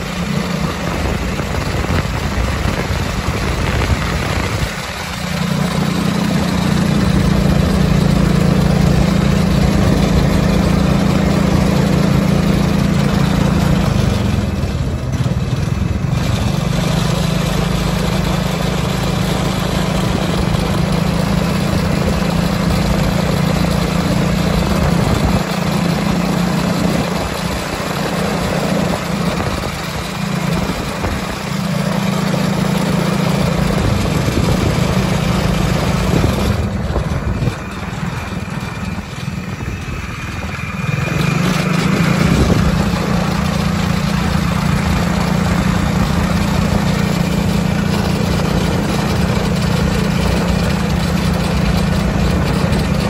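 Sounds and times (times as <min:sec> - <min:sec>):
go-kart engine at high revs: 0:00.0 - 0:53.0.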